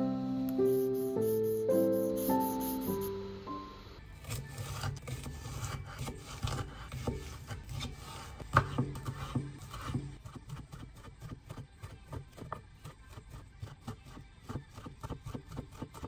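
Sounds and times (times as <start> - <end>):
knife chopping on wooden board: 4.2 - 16.0.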